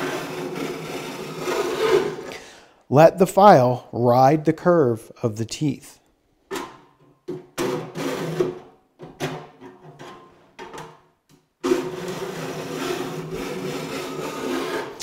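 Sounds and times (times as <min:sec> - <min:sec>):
file rasping on saw teeth: 0:00.0 - 0:02.3, 0:11.7 - 0:15.0.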